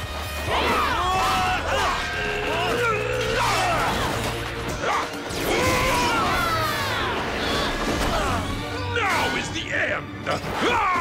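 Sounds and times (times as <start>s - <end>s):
action music: 0.0s - 11.0s.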